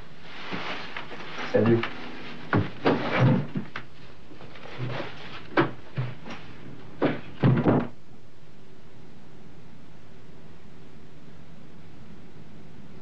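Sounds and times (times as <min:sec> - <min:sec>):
footsteps on stairs: 0:01.7 - 0:07.4
door opening and shutting: 0:01.7 - 0:08.0.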